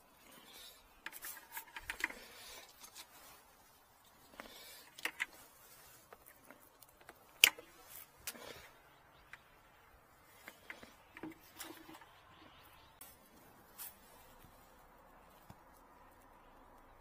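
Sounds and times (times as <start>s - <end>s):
plastic handling clicks and rustles: 0.9s - 3.4s, 4.0s - 8.5s.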